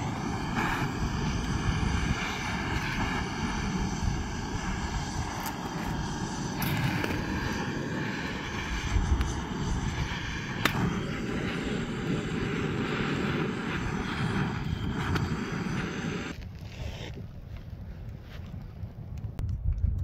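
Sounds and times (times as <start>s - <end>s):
propane torch hissing: 0.0s - 17.5s
sharp crack: 10.5s - 11.0s.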